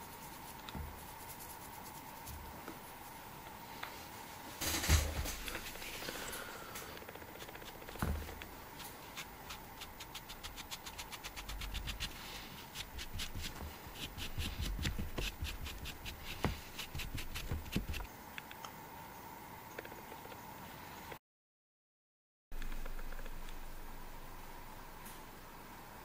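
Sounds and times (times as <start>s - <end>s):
cloth rubbing on stone: 0.0s - 3.3s, 8.8s - 18.0s.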